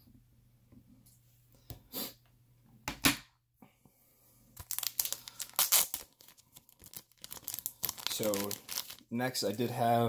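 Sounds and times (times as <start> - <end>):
packaging tearing: 4.6 - 9.1
packaging rustling and crinkling: 4.6 - 9.7.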